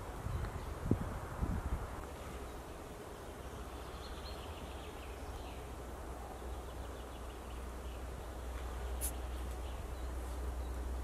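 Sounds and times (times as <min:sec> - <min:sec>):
distant bird calls: 0:02.0 - 0:11.0.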